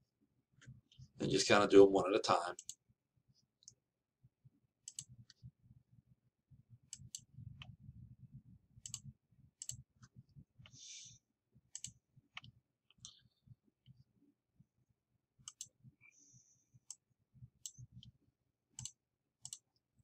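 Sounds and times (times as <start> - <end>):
computer mouse clicking: 4.8 - 5.4, 8.8 - 9.8, 11.7 - 13.3, 15.4 - 15.8, 18.8 - 19.8.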